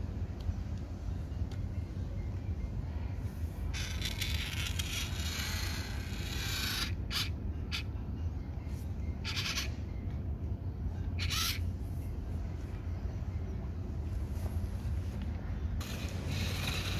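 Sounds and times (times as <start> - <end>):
steady low hum: 0.0 - 16.9
toy motor whirring: 3.7 - 7.9, 9.2 - 9.8, 11.2 - 11.6, 15.8 - 16.9.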